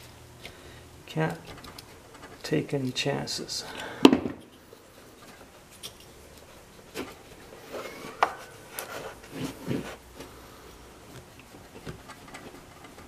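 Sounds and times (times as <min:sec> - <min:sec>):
hand tools clicking and knocking: 0:01.2 - 0:03.0.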